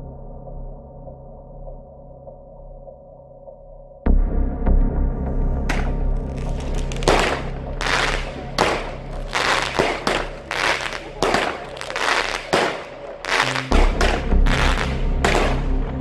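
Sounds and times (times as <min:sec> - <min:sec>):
firework shots banging: 0:05.7 - 0:15.8.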